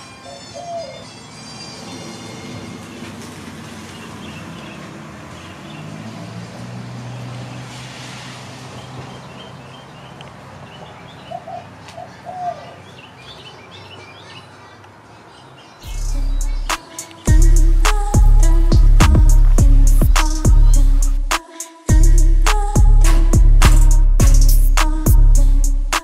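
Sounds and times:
dove cooing: 0.2 - 1.1, 11.3 - 13.0
small birds chirping: 3.8 - 6.2, 8.7 - 18.6
low hum: 15.9 - 16.7, 17.3 - 21.3.

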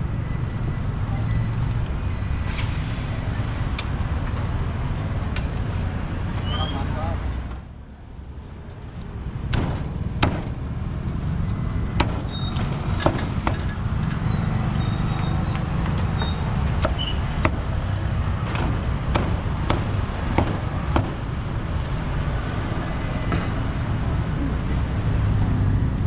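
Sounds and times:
road traffic rumble: 0.0 - 26.0
cleaver chopping on wooden block: 12.0 - 12.3, 16.8 - 17.7, 18.5 - 21.2.

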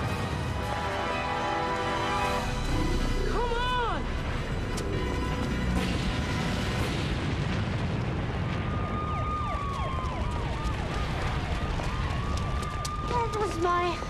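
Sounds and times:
explosion rumbling blast: 2.7 - 13.1
wailing siren: 8.5 - 14.0.

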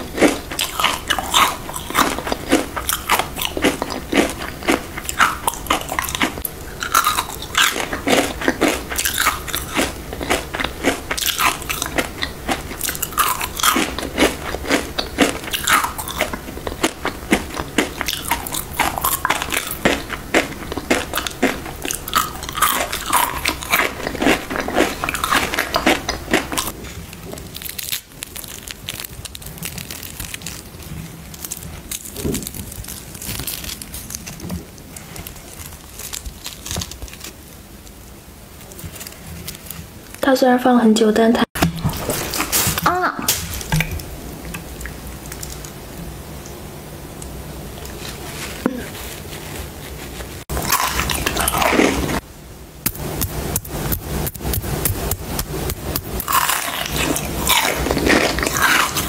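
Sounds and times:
ice crunching while chewed: 0.0 - 37.4, 41.8 - 42.9, 50.4 - 52.2, 53.2 - 59.0
soft chewing sounds: 0.0 - 40.2, 41.7 - 45.8, 47.2 - 52.2, 54.2 - 59.0.

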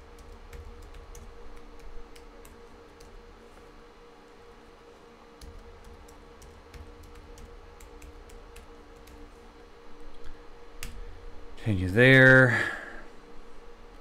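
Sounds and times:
computer keyboard keystrokes: 0.0 - 3.2, 5.4 - 9.3
faint steady hum: 0.0 - 14.0.

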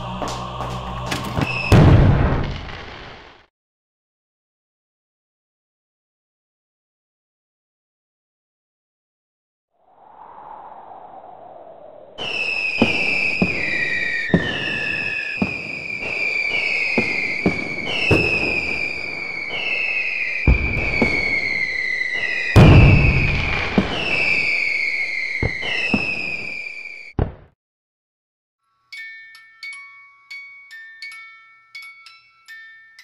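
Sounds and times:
firework cracks: 0.0 - 3.5, 12.2 - 27.5
whistling rockets: 1.1 - 3.5, 11.3 - 27.6
heavy firework booms: 1.4 - 3.4, 12.2 - 27.5.

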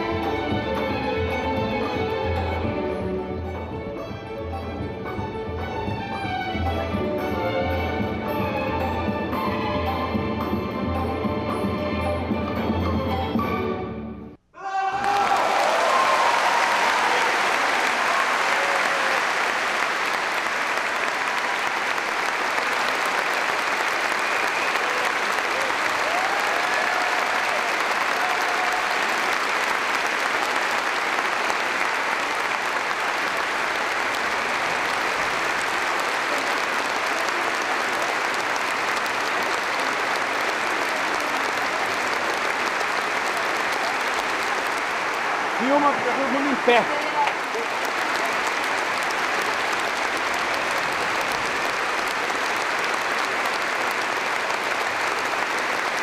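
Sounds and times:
audience applauding: 14.6 - 56.0
calls from audience: 14.6 - 56.0.

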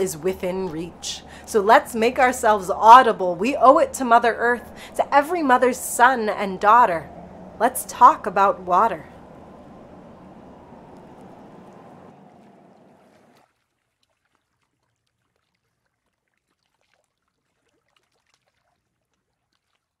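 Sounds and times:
water rushing: 0.0 - 13.4
water lapping and dripping: 0.0 - 20.0.

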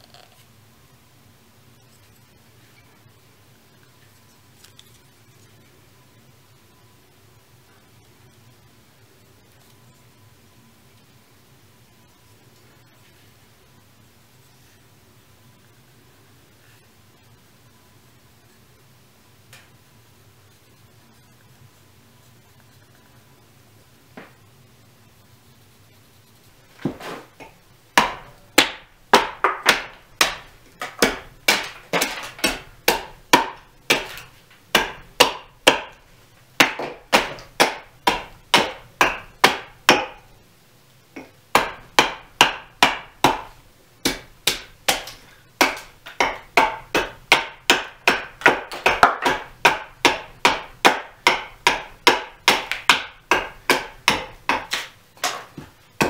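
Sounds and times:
hatchet chopping wood: 28.0 - 36.0, 36.6 - 40.2, 41.2 - 55.7.

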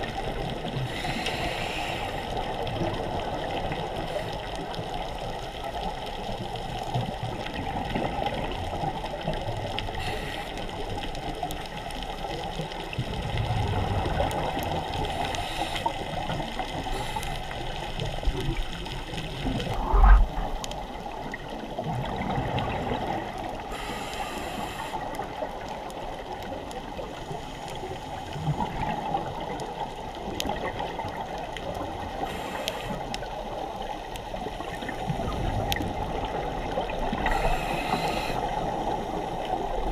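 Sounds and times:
underwater rush and gurgles: 0.0 - 39.9.

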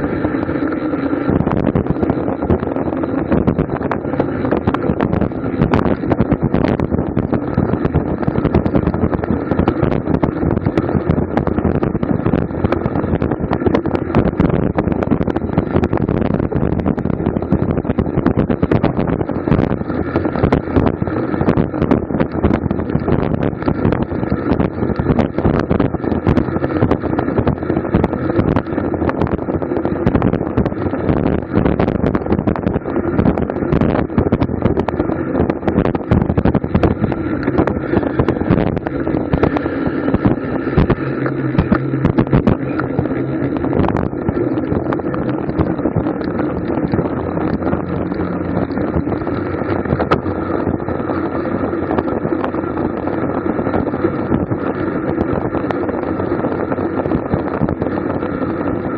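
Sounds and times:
road and drivetrain noise: 0.0 - 58.9
wind buffeting microphone: 0.0 - 58.9.

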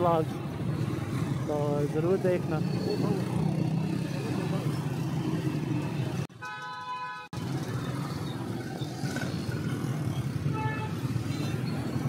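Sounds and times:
street traffic: 0.0 - 12.0
motorcycle engine: 2.6 - 6.3
vehicle horn: 6.4 - 7.3, 10.5 - 11.0.

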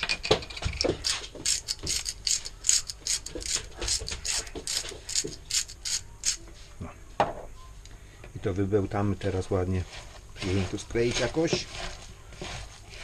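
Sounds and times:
spice grinder ratcheting clicks: 1.4 - 6.4.

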